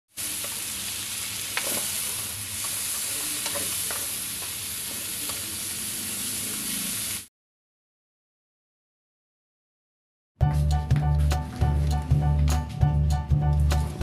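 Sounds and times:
food sizzling in a wok: 0.1s - 7.3s.

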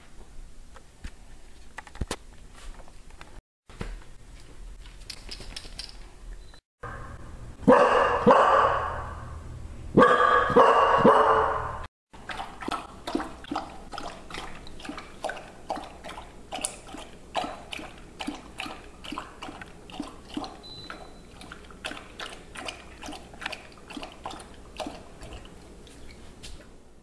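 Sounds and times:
puppy lapping water: 12.1s - 26.2s.

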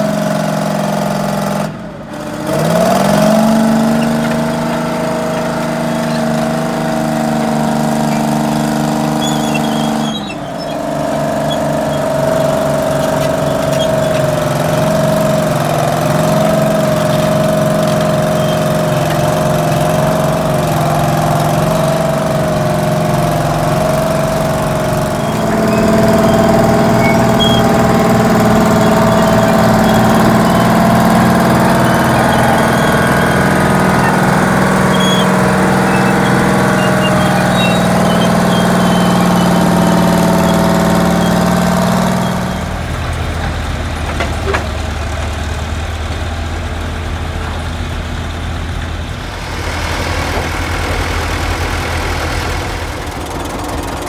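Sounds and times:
deep engine drone: 0.0s - 54.0s
heavy machine engine running: 0.0s - 54.0s.

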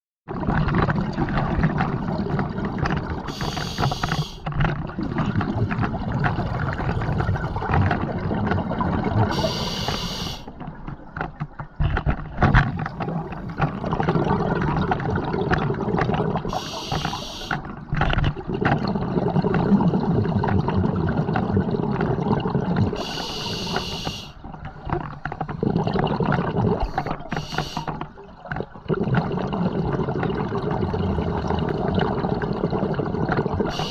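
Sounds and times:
bubbling exhale: 2.1s - 4.4s, 5.0s - 10.5s, 12.8s - 17.6s, 18.5s - 24.4s, 25.4s - 28.0s, 28.9s - 33.9s
hissing regulator inhale: 3.3s - 4.4s, 9.3s - 10.5s, 16.5s - 17.6s, 23.0s - 24.4s, 26.8s - 27.9s.

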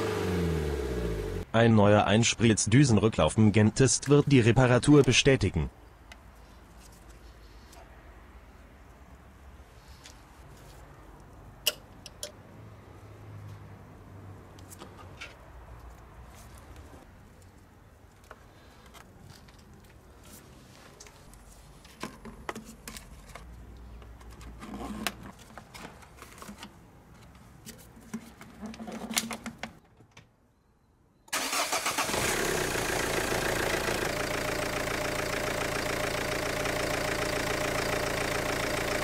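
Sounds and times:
diesel engine idling: 31.4s - 39.0s.

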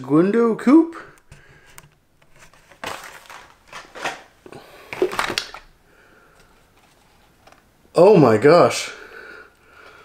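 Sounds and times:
cardboard and plastic packaging rustling: 1.3s - 5.8s, 6.4s - 7.7s.

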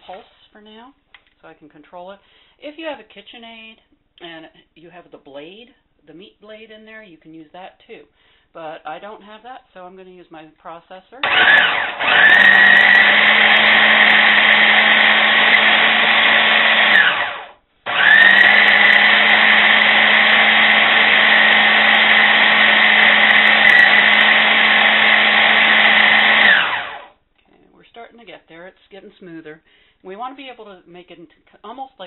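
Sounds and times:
food processor motor running: 11.2s - 27.1s.

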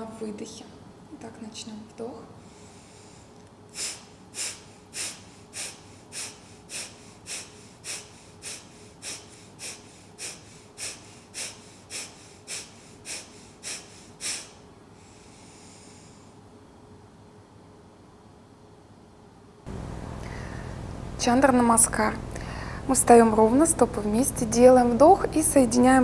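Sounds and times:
woman inhaling: 2.4s - 16.4s, 20.2s - 20.9s, 22.3s - 22.9s
woman forcefully exhaling through nose: 2.6s - 16.2s.

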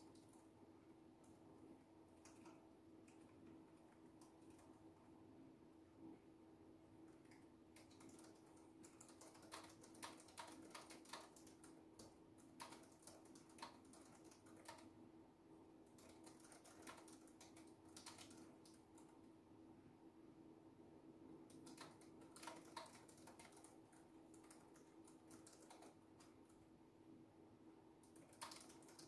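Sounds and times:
laptop keyboard typing: 0.0s - 0.5s, 2.1s - 4.9s, 7.1s - 15.0s, 15.9s - 19.2s, 21.5s - 26.6s, 28.0s - 29.0s
faint steady hum: 0.0s - 29.0s.

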